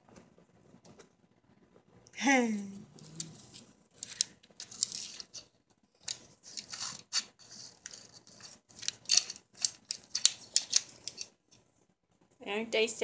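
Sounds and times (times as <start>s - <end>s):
light string wires and bulbs clicking: 8.7s - 11.6s.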